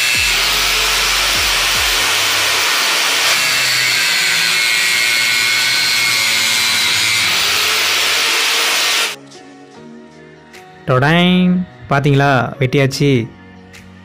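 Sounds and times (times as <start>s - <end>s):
angle grinder cutting plastic: 0.0s - 9.2s.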